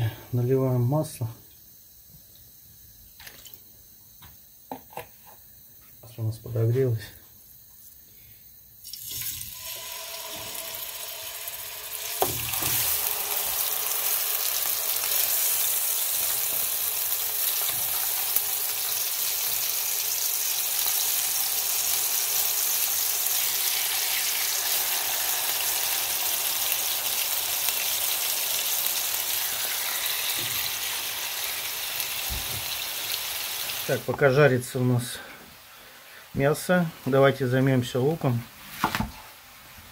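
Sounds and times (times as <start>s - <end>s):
meat sizzling in frying pan: 8.8s - 34.1s.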